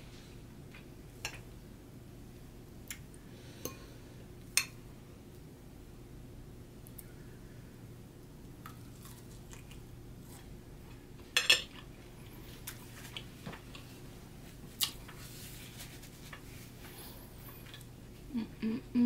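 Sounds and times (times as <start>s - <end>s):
faint steady hum: 0.0s - 19.0s
chewing with wet mouth clicks: 8.6s - 10.5s.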